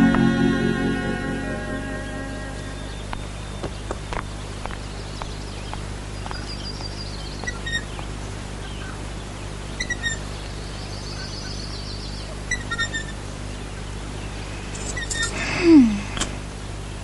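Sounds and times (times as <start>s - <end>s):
birds chirping: 0.0s - 17.0s
steady low hum: 0.0s - 17.0s
bird trilling: 6.3s - 8.0s, 9.8s - 10.3s, 12.4s - 13.2s.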